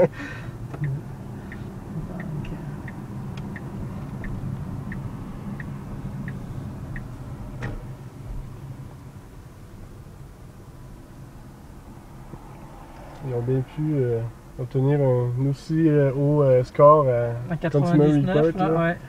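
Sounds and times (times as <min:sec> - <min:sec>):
turn signal ticking: 0:00.0 - 0:13.4
car cabin hum: 0:00.0 - 0:19.0.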